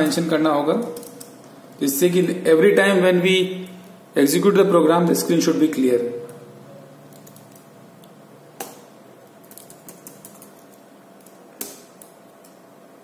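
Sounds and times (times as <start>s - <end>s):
faint steady hum: 0.0s - 13.0s
keyboard keystrokes: 7.1s - 7.7s, 9.4s - 12.2s.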